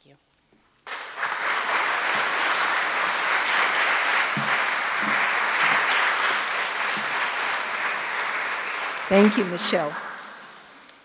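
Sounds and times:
audience applauding: 0.8 - 11.0.

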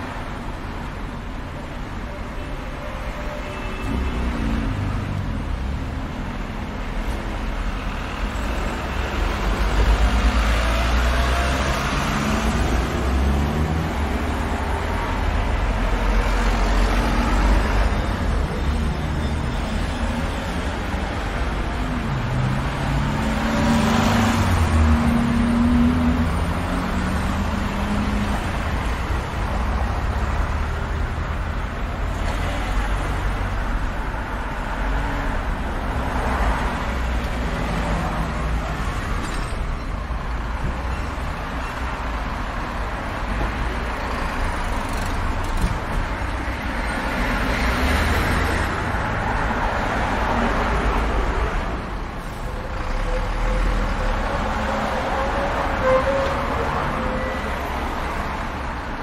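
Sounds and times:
traffic rumble: 0.0 - 59.0
vehicles passing close: 3.8 - 59.0.

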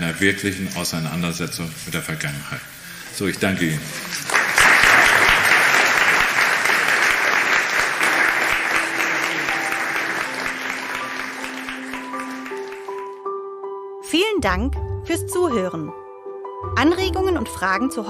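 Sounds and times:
audience applauding: 3.5 - 13.2.

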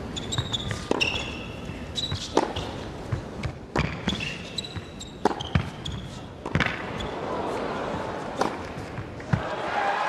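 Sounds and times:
shoes squeaking on court: 0.0 - 7.2
tennis ball bounces: 0.2 - 7.2, 7.9 - 9.5
tennis racket strikes: 2.0 - 5.8.

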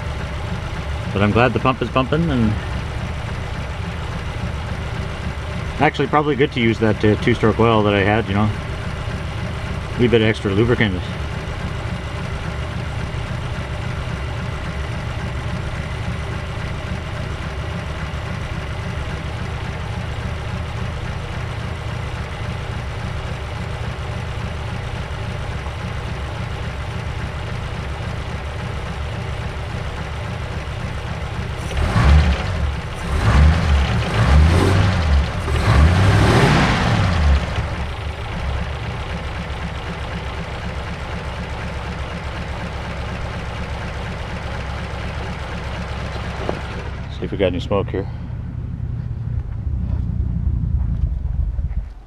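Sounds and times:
car engine idling unevenly: 0.0 - 52.0
engine revving: 0.7 - 2.9, 4.8 - 8.6, 31.5 - 39.0, 46.0 - 52.0.

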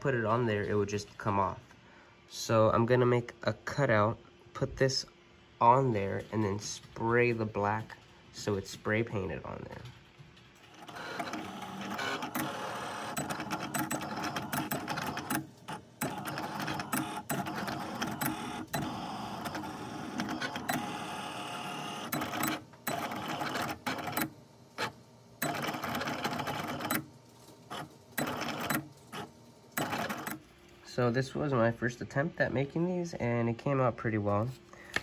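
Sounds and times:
cutting machine motors whirring: 10.7 - 27.0, 27.7 - 30.4.

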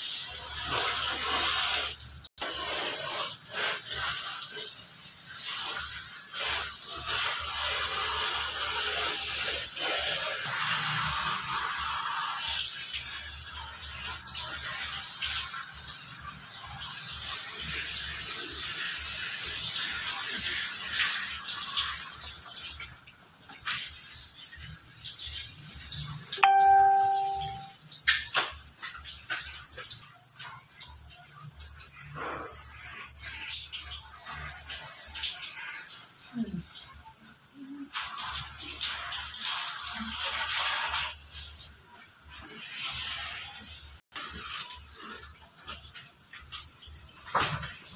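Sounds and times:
water splashing from a hose: 0.0 - 47.9
bell-like ding: 26.4 - 27.8.

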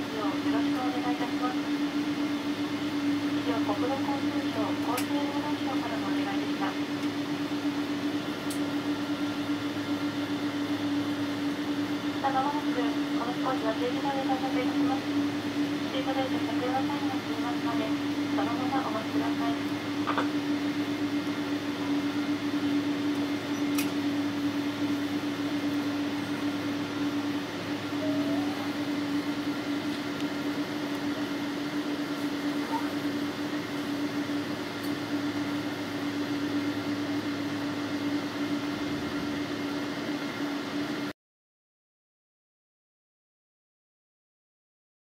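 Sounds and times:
steady engine drone: 0.0 - 41.1.

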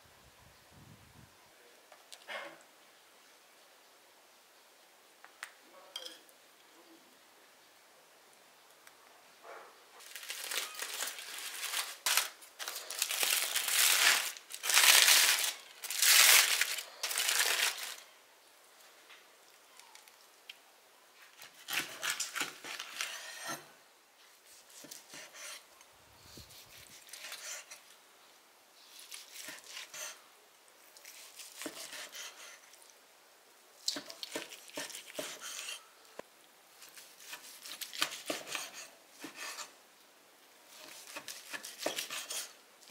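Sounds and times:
crunchy crackling: 10.0 - 18.1
knife cutting steak on wooden board: 34.3 - 35.8.

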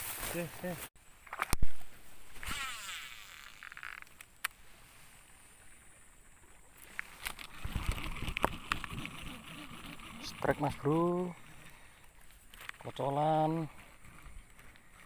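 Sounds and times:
small clicks of reel cranking: 2.5 - 4.3
fishing reel click: 2.5 - 4.6
reel spool whirring: 7.3 - 11.9.

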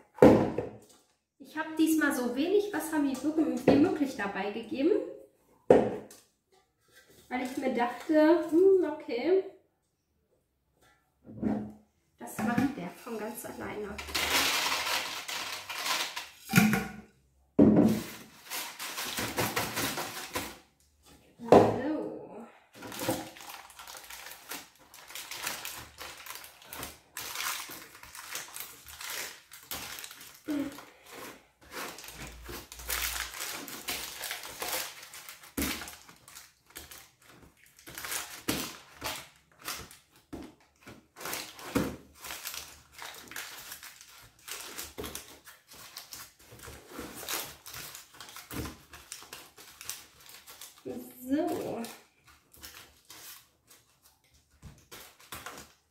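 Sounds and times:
baking paper crinkling: 12.8 - 16.5, 17.9 - 20.7, 22.8 - 55.9.

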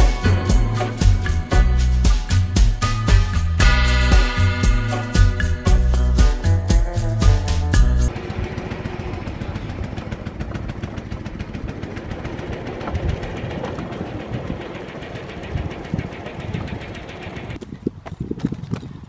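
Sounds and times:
small petrol engine idling: 8.0 - 17.6.

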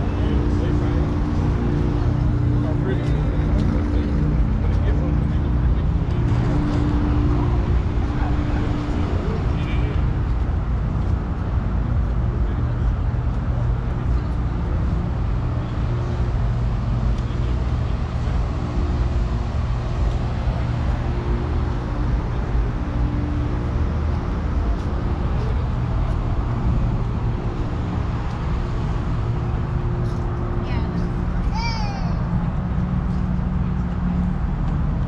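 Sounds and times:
engine idling: 0.0 - 31.6.

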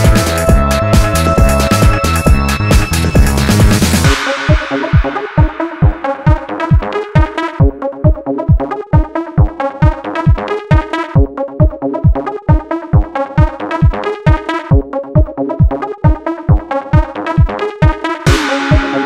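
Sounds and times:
kick drum: 0.0 - 19.0
synth chords: 0.0 - 19.0.

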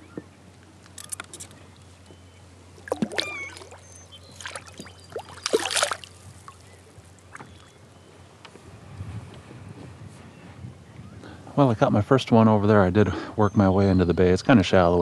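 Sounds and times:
water dripping: 2.8 - 6.6
paddle splashing in water: 2.8 - 7.7.

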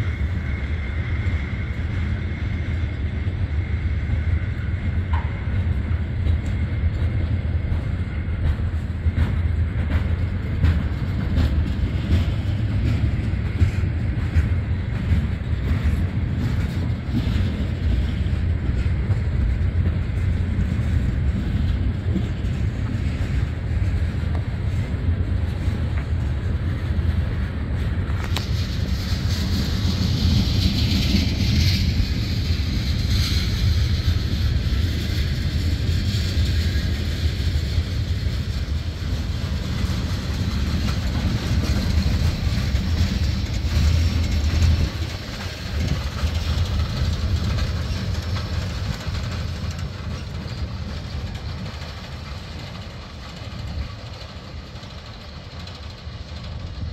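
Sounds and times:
train wheels clickety-clack: 0.0 - 56.9
train wheels rumbling on rails: 0.0 - 56.9.

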